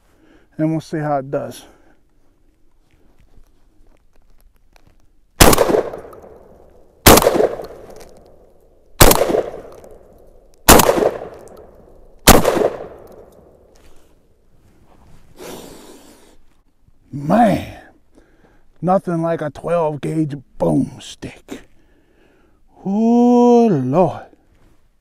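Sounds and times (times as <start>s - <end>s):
shotgun shots echoing: 5.4s - 8.4s, 9.0s - 13.7s.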